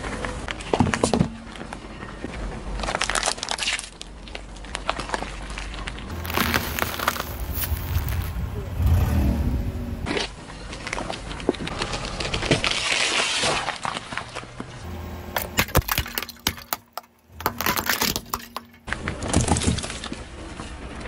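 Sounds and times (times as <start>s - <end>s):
tyre crunching objects on asphalt: 4.9s - 10.4s, 11.6s - 20.1s
plate snapping and breaking: 15.4s - 20.0s.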